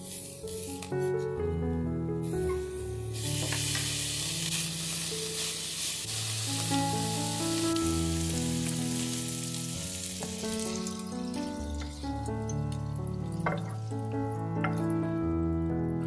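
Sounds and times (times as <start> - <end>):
bacon sizzling in frying pan: 3.0 - 14.4.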